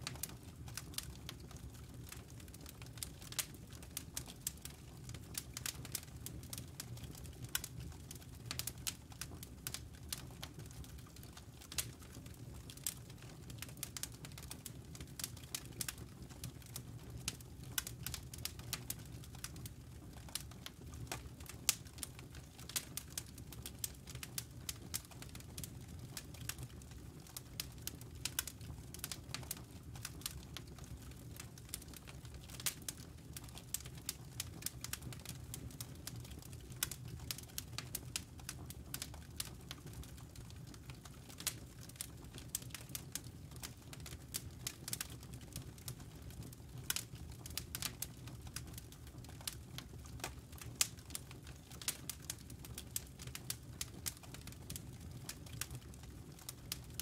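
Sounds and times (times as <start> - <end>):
wood fire crackling: 0.0 - 57.0.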